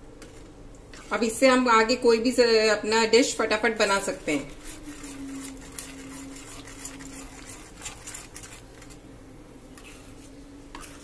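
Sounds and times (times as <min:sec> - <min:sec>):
faint steady hum: 0:00.0 - 0:11.0
metal spoon stirring gravy: 0:03.8 - 0:09.0, 0:09.8 - 0:11.0.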